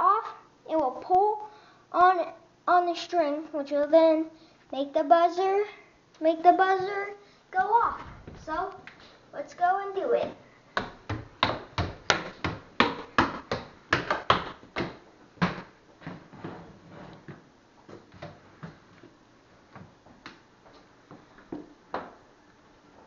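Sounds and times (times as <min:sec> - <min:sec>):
quick footsteps: 0:07.9 - 0:09.1, 0:10.7 - 0:19.2.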